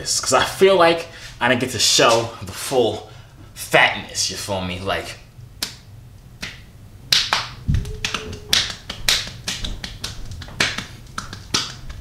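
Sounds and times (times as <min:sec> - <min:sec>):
hand slapping bare belly: 0:05.6 - 0:12.0.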